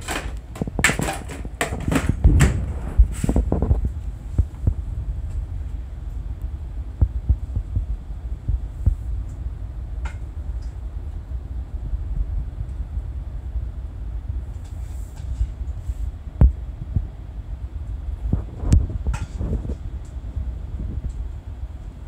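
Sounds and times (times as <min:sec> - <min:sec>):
popcorn popping: 0:00.0 - 0:03.8
low steady hum: 0:00.0 - 0:22.0.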